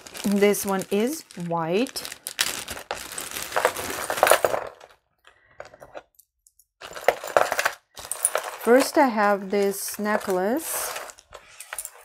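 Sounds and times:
beads and chains clinking: 0:00.0 - 0:05.0, 0:05.6 - 0:12.0
plastic bag crinkling: 0:00.0 - 0:05.0.

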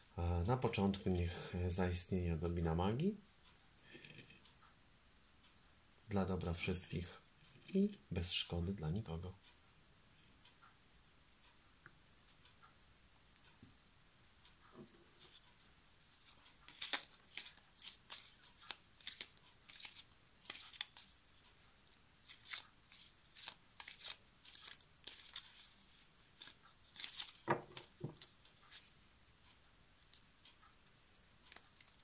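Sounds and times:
cards shuffling: 0:16.2 - 0:21.2, 0:22.2 - 0:28.9.

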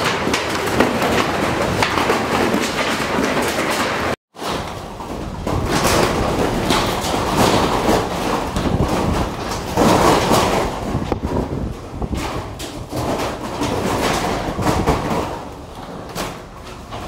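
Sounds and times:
strong wind gusts: 0:05.4 - 0:15.2.

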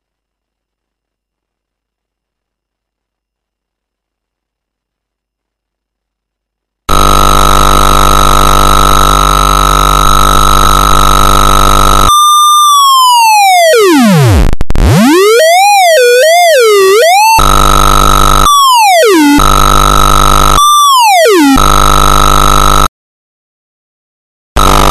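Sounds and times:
harsh buzzing tone: 0:06.9 - 0:22.9, 0:24.6 - 0:24.9
swooping square-wave synth tone: 0:06.9 - 0:22.9, 0:24.6 - 0:24.9.

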